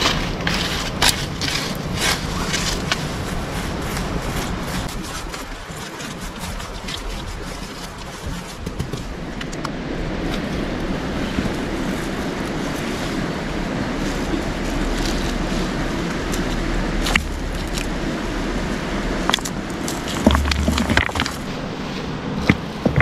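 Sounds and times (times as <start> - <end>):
river rushing: 0.0 - 8.3, 9.0 - 23.0
stones clicking together: 19.2 - 21.5, 22.5 - 23.0.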